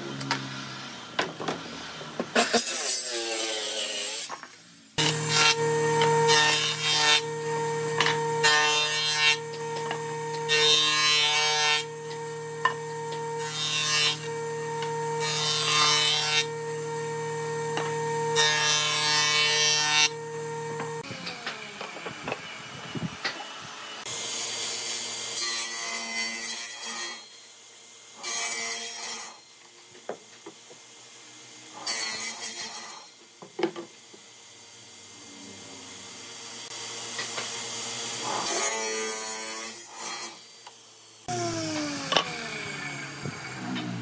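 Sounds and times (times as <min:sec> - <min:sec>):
jointer cutting board: 0:00.0 - 0:27.2, 0:35.2 - 0:44.0
jointer motor hum: 0:05.0 - 0:24.1, 0:40.7 - 0:44.0.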